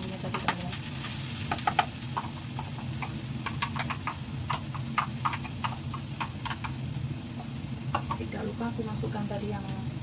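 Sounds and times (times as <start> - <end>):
oil popping and crackling: 0.0 - 10.0
paste frying in hot oil: 0.0 - 10.0
wooden spatula tapping pan: 1.4 - 8.3.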